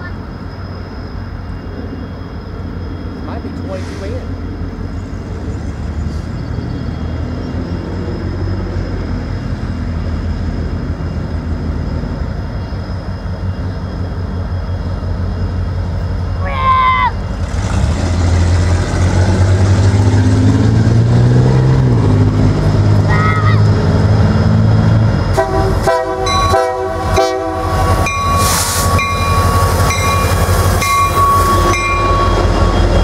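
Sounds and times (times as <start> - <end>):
diesel locomotive engines droning: 0.0 - 33.0
short train horn toot: 25.4 - 29.0.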